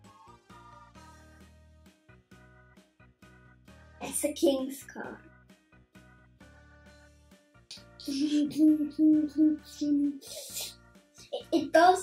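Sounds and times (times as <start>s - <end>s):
child making vehicle noises: 8.1s - 10.7s
child's breathy hiss: 10.2s - 10.8s.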